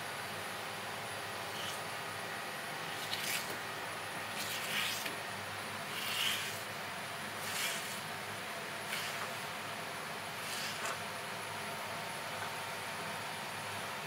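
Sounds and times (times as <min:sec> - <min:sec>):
knife slicing fish: 0:07.4 - 0:08.0.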